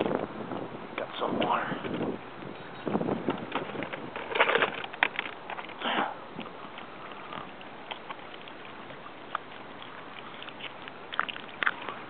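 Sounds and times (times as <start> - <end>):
water lapping around canoe: 3.2 - 12.0
water splashing: 5.4 - 12.0.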